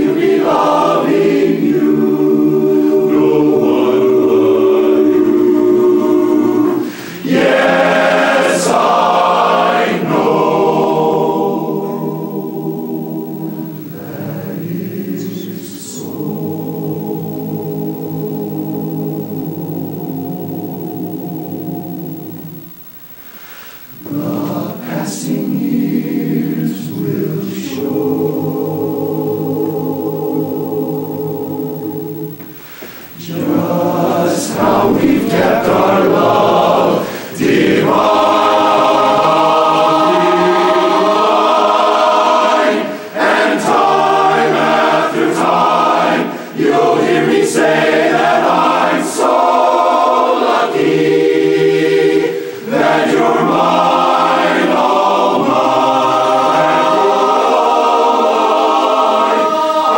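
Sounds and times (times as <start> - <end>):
men's chorus singing in harmony: 0.0 - 22.8, 23.8 - 59.9
singers breathing: 6.8 - 7.3, 23.2 - 24.0, 32.5 - 33.2.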